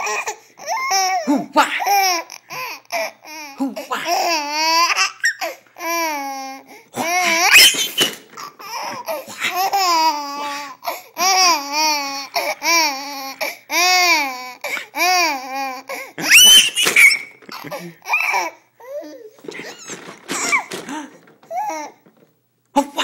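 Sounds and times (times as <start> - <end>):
baby laughing: 0.0 - 6.4, 7.0 - 22.1
baby squealing: 4.0 - 5.5, 7.0 - 10.7, 16.2 - 18.5.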